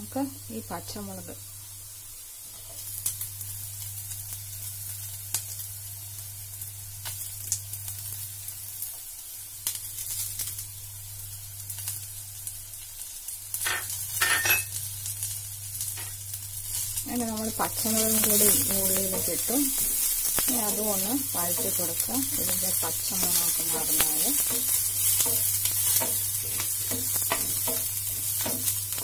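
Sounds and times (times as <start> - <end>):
onions sizzling in a pan: 0.0 - 29.0.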